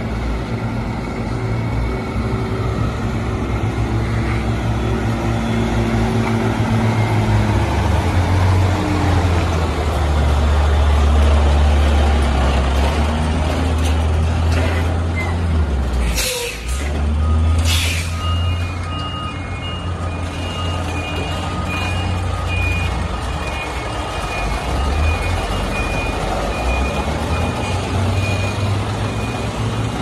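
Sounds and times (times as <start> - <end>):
diesel truck engine droning: 0.0 - 30.0.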